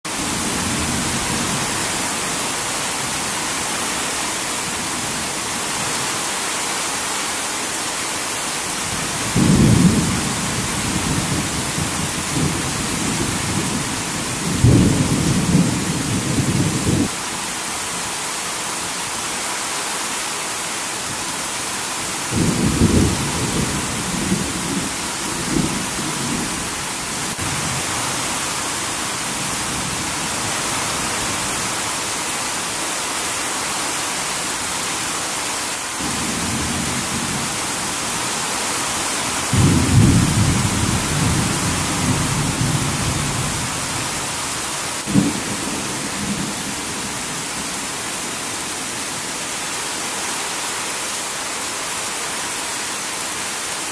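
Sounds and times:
heavy rain on a tin roof: 0:00.0 - 0:53.9
thunder rumbles: 0:08.9 - 0:17.2, 0:22.3 - 0:28.6, 0:39.5 - 0:44.4, 0:45.0 - 0:47.9.

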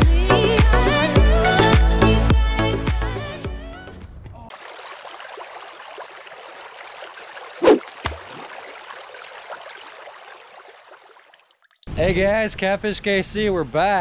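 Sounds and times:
running water: 0:04.5 - 0:11.9.

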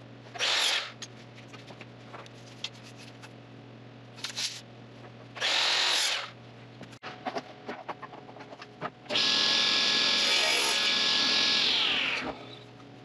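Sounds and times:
power tool bursts: 0:05.4 - 0:06.3.

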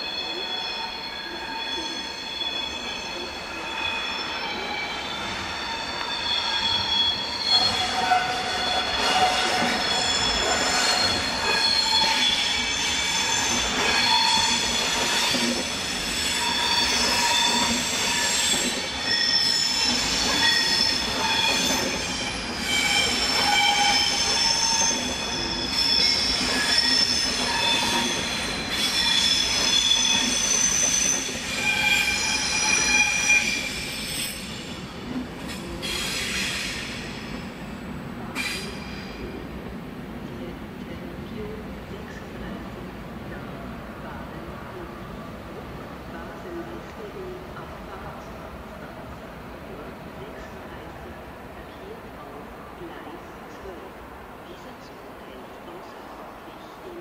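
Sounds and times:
train wheels squealing: 0:00.0 - 0:37.7, 0:38.3 - 0:39.5.

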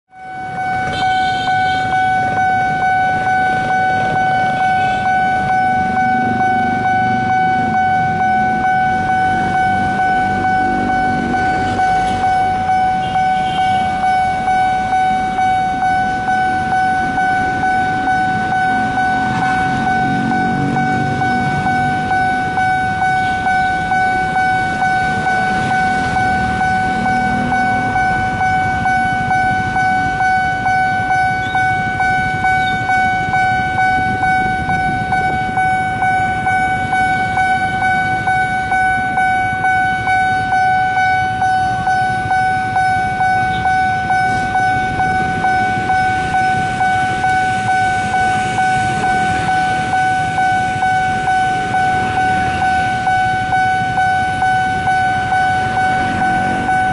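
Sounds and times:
crossing bell pulsing tone: 0:00.1 - 0:56.9
low rumble of road traffic: 0:00.1 - 0:56.9.

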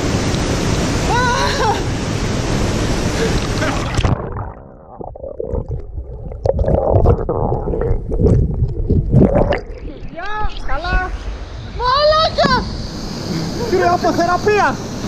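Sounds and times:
bubbles: 0:03.2 - 0:11.3
muffled underwater rumbling: 0:03.2 - 0:11.8.

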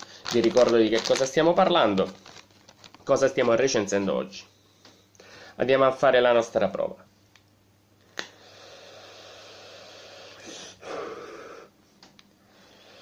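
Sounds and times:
breathy exhale: 0:04.6 - 0:05.6, 0:08.3 - 0:11.7, 0:12.4 - 0:13.0
e-cigarette hiss on inhale: 0:08.1 - 0:11.7, 0:12.5 - 0:13.0.

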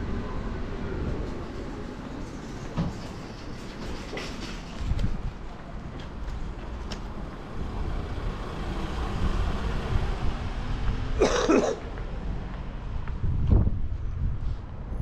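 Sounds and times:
person coughing: 0:11.2 - 0:11.8.

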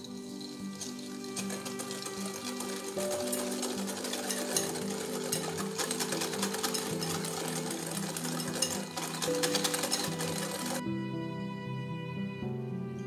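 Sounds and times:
soft background music: 0:00.0 - 0:13.0
whisk clicking against glass bowl: 0:00.8 - 0:10.8.

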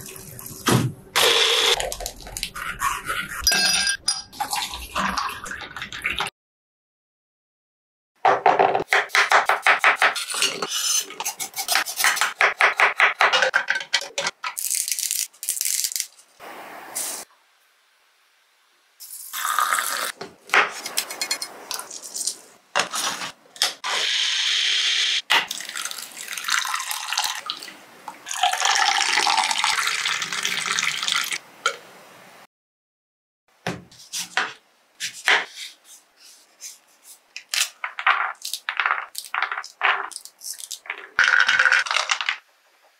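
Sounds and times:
liquid splashing and pouring: 0:25.4 - 0:31.4.

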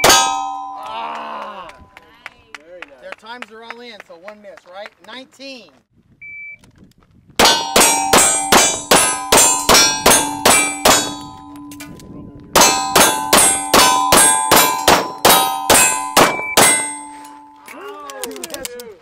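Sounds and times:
steel plate clanging: 0:00.0 - 0:00.9, 0:07.4 - 0:17.7
rapid pistol shots: 0:12.6 - 0:17.0.

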